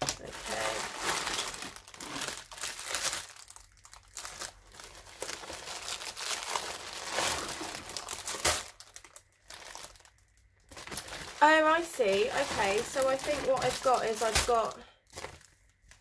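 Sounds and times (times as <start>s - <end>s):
plastic packaging crinkling: 0.0s - 16.0s
sharp plastic crack: 6.1s - 11.3s, 13.1s - 16.0s.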